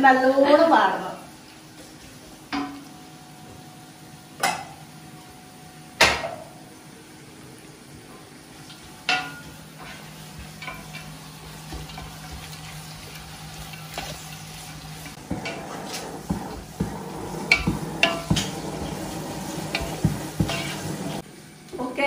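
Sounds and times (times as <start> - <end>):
onions sizzling in oil: 0.1 - 22.0
spatula knocking against pot: 19.7 - 20.7.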